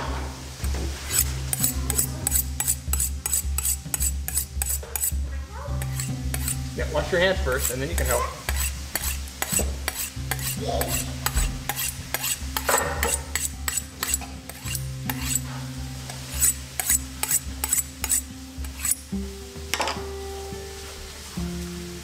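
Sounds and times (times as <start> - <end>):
knife honed on honing steel: 1.1 - 5.1, 5.8 - 6.6, 7.5 - 15.4, 16.1 - 19.0.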